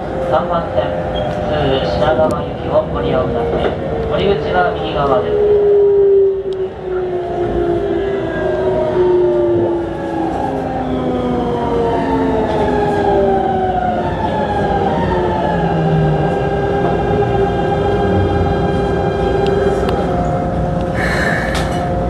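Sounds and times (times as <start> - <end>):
wheels rumbling on rail: 0.0 - 22.0.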